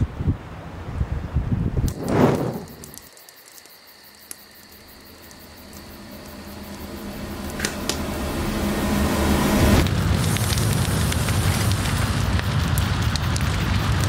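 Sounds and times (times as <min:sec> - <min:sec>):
campfire crackles: 0:01.8 - 0:14.0
loud rush: 0:01.9 - 0:03.0, 0:06.0 - 0:12.3
faint insect chirping: 0:02.0 - 0:09.4
low drone: 0:05.1 - 0:14.0.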